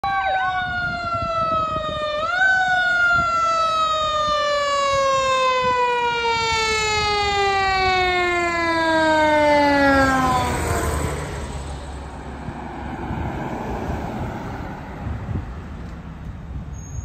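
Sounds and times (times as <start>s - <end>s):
mechanical siren wailing: 0.0s - 11.5s
truck engine and road rumble: 0.0s - 17.0s.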